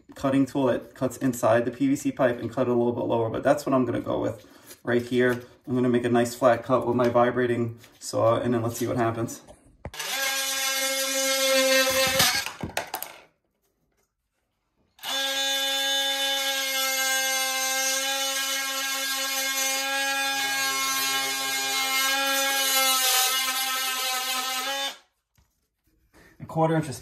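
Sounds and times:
oscillating multi-tool cutting pipe: 9.9 - 12.5, 15.0 - 25.1.

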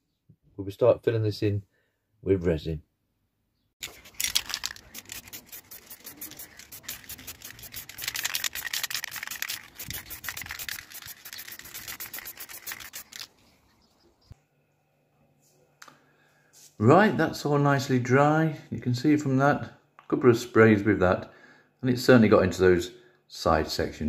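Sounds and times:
spray paint can hissing: 3.8 - 13.3.

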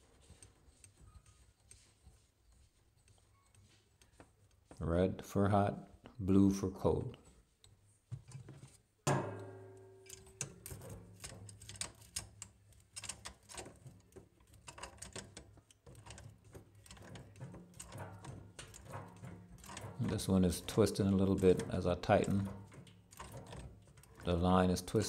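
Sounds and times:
sharp metallic clink: 9.1 - 10.3
pliers clicking and scraping: 10.0 - 20.8.

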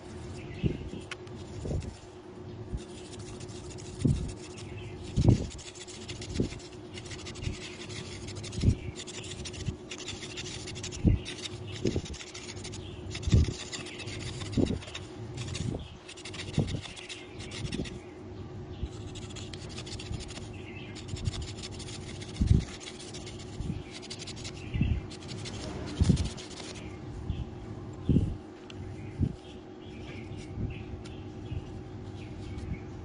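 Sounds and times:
knife scraping bamboo stick: 2.8 - 18.0, 18.9 - 26.9.

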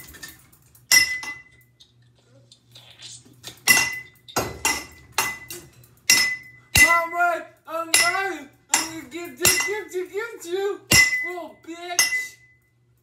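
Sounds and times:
pole striking metal fan: 3.7 - 7.3, 7.9 - 9.9, 10.9 - 12.5.

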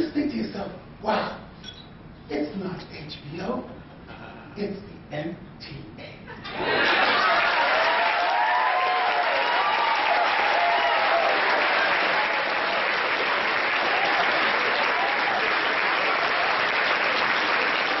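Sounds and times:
audience applauding: 6.6 - 18.0.

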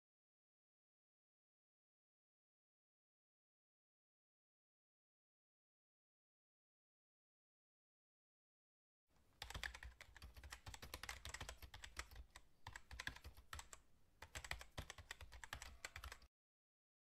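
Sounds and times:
computer keyboard typing: 9.4 - 16.3.

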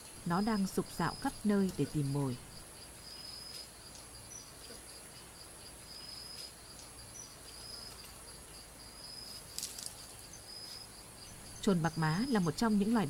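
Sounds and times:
faint steady high whine: 0.0 - 13.0
insects chirring in high trills: 0.0 - 13.0
brief crackle: 9.5 - 10.1.

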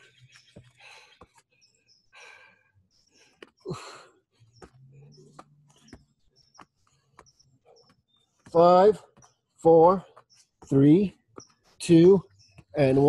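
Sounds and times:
birds chirping faintly: 0.0 - 13.0
man breathing hard: 0.6 - 4.4.

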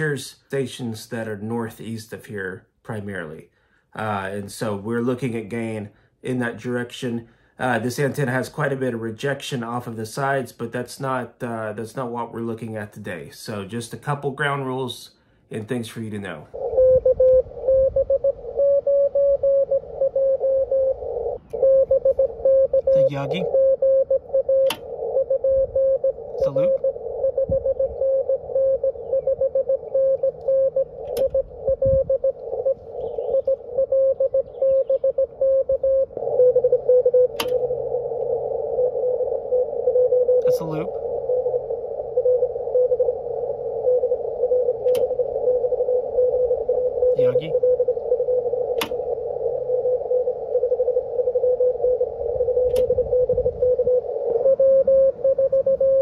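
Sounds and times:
morse code beeps: 16.6 - 56.0
sharp clicks: 24.6 - 24.9, 37.3 - 38.3, 44.8 - 45.3, 48.7 - 49.1, 52.7 - 53.0
radio receiver hiss: 35.4 - 56.0.

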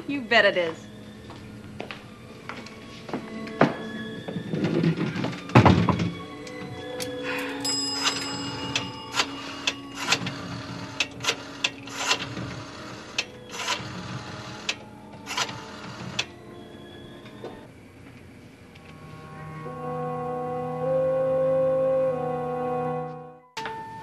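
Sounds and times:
short metallic telephone ring: 7.6 - 9.4.

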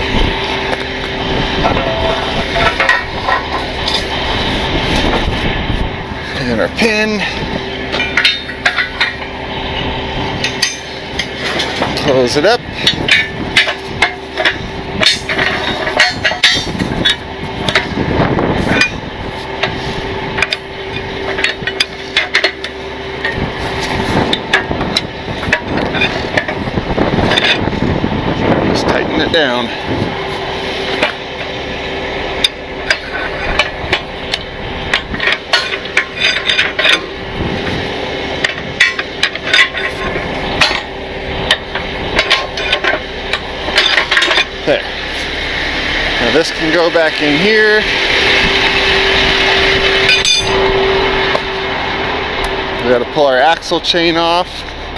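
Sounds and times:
steady low hum: 0.0 - 54.9
metal chain clanking: 1.6 - 4.2, 6.3 - 9.8, 10.4 - 18.0, 18.6 - 19.8, 20.4 - 27.7, 32.4 - 37.2, 38.4 - 45.4, 50.0 - 50.7.

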